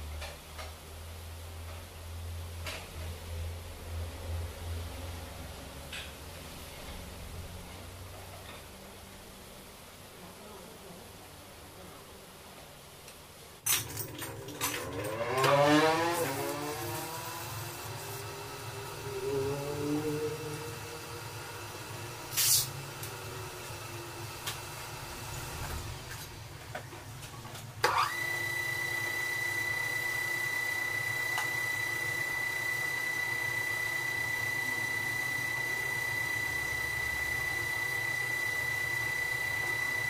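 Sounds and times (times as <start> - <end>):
high-pitched whine: 14.6 - 26.6, 27.8 - 40.0
metal lathe running: 27.9 - 40.0.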